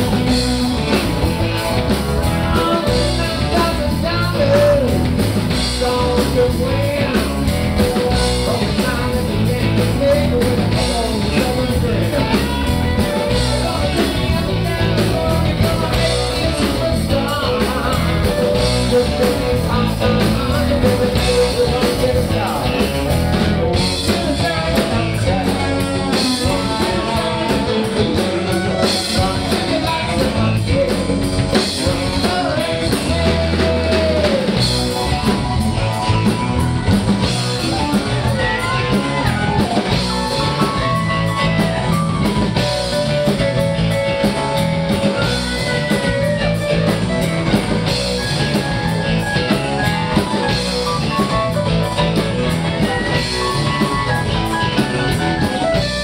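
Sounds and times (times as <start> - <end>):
lead guitar bending notes: 0.0 - 56.0
rock band playing live: 0.0 - 56.0.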